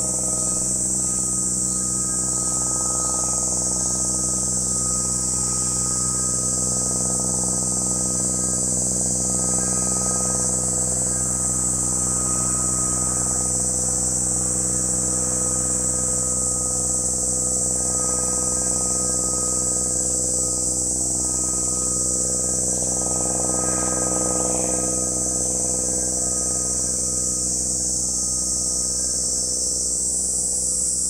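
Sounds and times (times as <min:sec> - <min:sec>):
cicadas calling: 0:00.0 - 0:31.0
low hum: 0:00.0 - 0:31.0.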